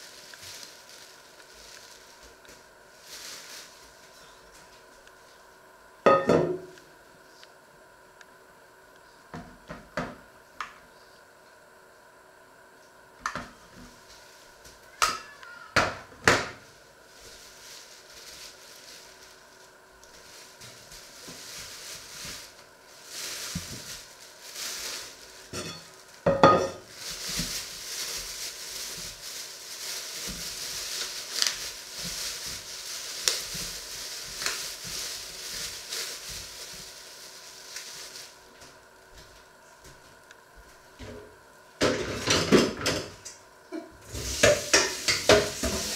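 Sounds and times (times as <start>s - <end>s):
plastic bag crinkling: 0.0s - 5.4s, 16.6s - 39.3s.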